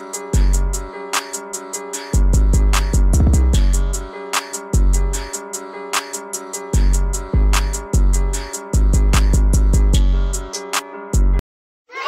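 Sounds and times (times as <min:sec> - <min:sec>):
background music with beat: 0:00.0 - 0:11.4
deep sliding bass hits: 0:02.4 - 0:04.0.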